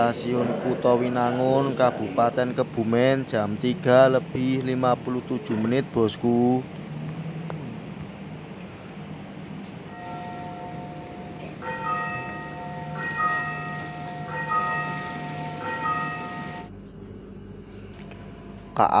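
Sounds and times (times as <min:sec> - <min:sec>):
low hum of standing train: 0:00.0 - 0:19.0
bell-like station chime melody: 0:09.9 - 0:16.7.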